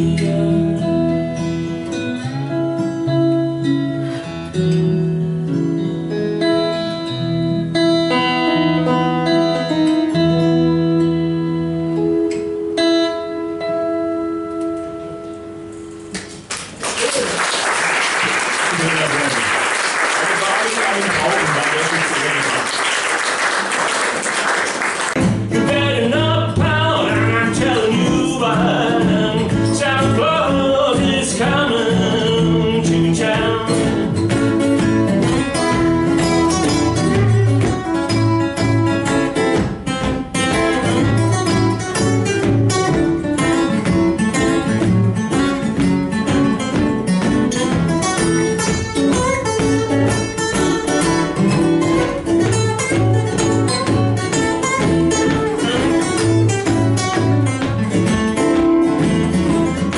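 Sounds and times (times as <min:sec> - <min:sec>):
acoustic guitars playing: 0:00.0 - 0:59.9
applause: 0:16.2 - 0:25.2
steady bass: 0:25.2 - 0:59.9.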